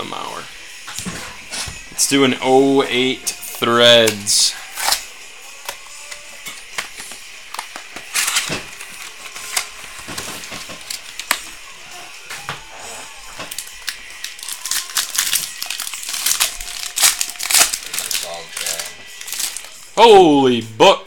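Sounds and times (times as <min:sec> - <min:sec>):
cards clicking and rustling: 0:04.0 - 0:11.6, 0:13.3 - 0:19.8
wrapper crinkling: 0:07.0 - 0:11.6, 0:13.0 - 0:19.9.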